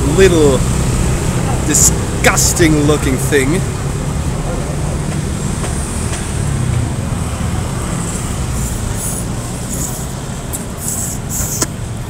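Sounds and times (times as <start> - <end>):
street traffic rumble: 0.0 - 12.0
sucking hisses: 8.3 - 11.7.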